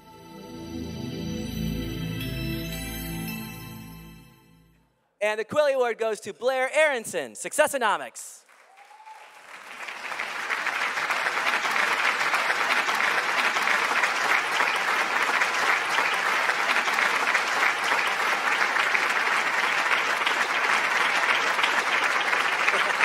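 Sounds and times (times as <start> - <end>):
audience applauding: 8.4 - 23.0.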